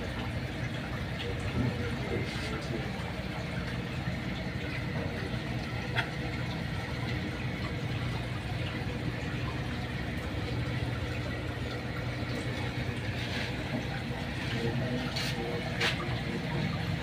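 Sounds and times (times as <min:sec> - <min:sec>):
low mechanical hum: 0:00.0 - 0:17.0.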